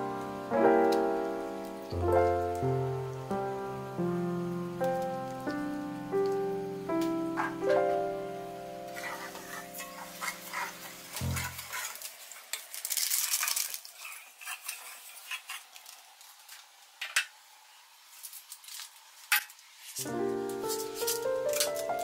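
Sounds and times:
utensil scraping and sloshing in pot: 8.9 - 16.4.

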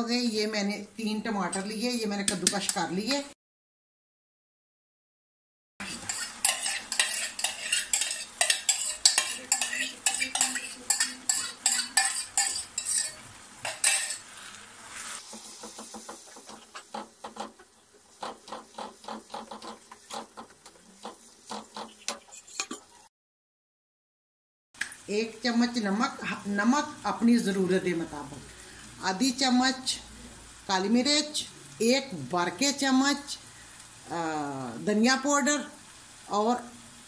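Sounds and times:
tomatoes sizzling in oil: 0.0 - 3.4, 5.8 - 23.1, 24.8 - 37.0
spatula scraping and knocking pan: 5.8 - 22.9.

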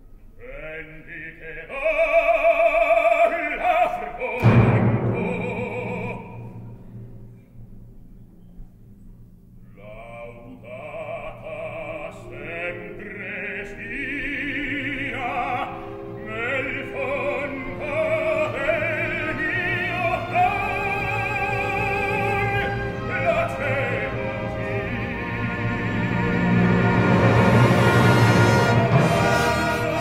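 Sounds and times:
baritone singing opera: 0.4 - 6.6, 9.7 - 26.8, 27.4 - 30.0
orchestra playing: 2.9 - 7.4, 11.8 - 30.0.

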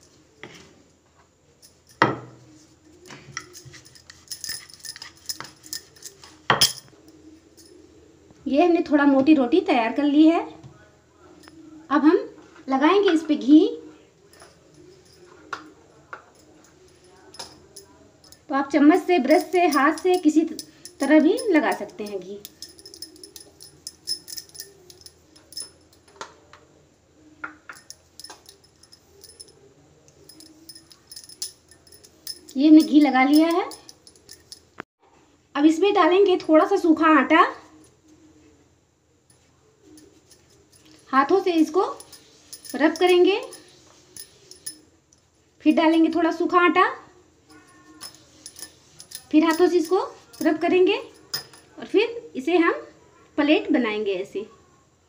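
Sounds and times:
light clicks and clinks: 3.0 - 7.8, 14.3 - 26.2, 27.7 - 34.8, 39.3 - 46.3, 47.5 - 51.8
spoon clicking and scraping on dough: 19.3 - 26.0, 30.3 - 34.7.

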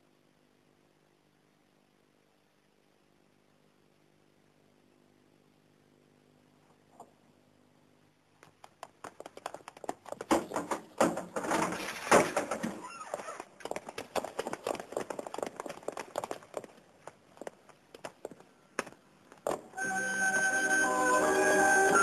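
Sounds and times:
rapid knocks and taps: 8.4 - 19.7.

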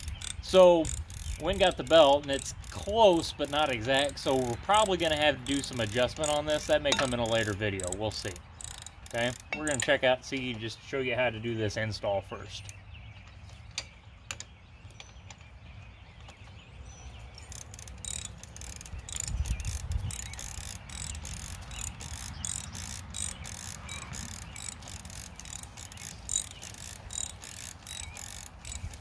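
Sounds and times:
socket ratchet clicking: 0.0 - 9.8, 17.4 - 29.0.

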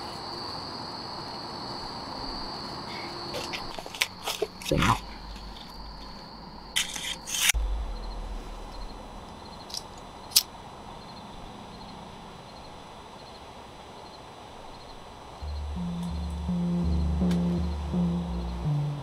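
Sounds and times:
crickets chirping: 0.0 - 19.0
cigarette pack foil rustling: 3.3 - 4.8
sharp snap: 17.2 - 17.5.

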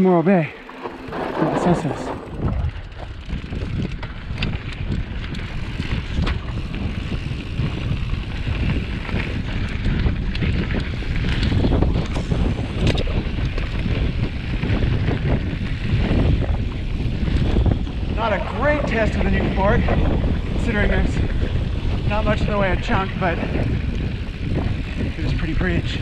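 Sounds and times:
bike clicks and rattles: 0.0 - 26.0
bike tyres rumbling on dirt: 0.0 - 26.0
wind on microphone: 0.6 - 26.0.

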